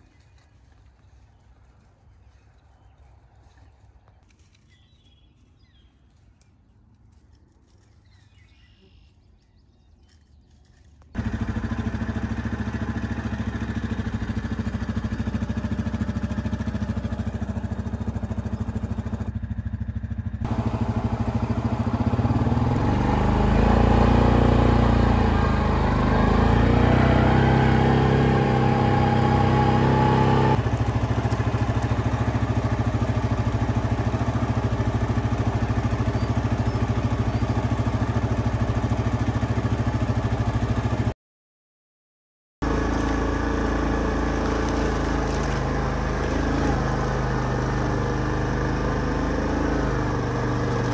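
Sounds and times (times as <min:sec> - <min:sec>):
atv engine running: 0:09.8 - 0:41.1, 0:42.6 - 0:50.9.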